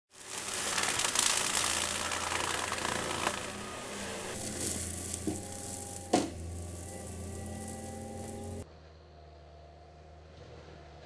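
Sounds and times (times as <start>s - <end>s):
mulcher shredding brush: 0.1s - 8.6s
engine drone: 0.2s - 11.0s.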